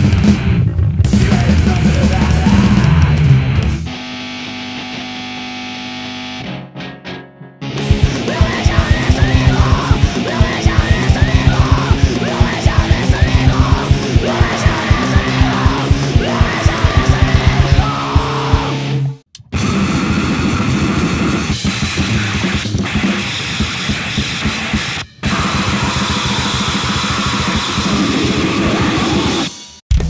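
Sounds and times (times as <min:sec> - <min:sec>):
very fast drumming: 0:00.0 - 0:03.2, 0:07.8 - 0:18.8, 0:21.1 - 0:30.0
distorted guitar: 0:00.0 - 0:30.0
vocals: 0:01.1 - 0:03.4, 0:07.9 - 0:19.0.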